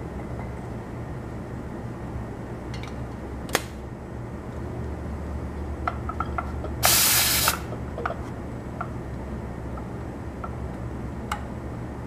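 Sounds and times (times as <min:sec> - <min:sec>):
refrigerant gas hiss: 0:06.8 - 0:07.7.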